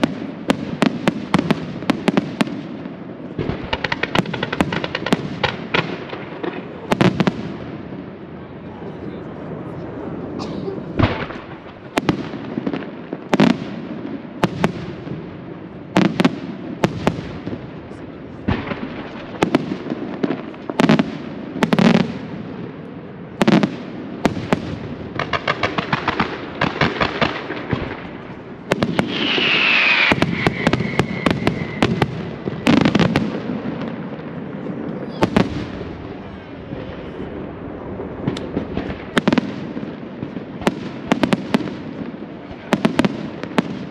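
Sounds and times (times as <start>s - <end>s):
rapid firework crackling: 0.0s - 7.6s, 23.4s - 34.5s, 35.3s - 43.9s
falling firework whistle: 28.8s - 33.2s.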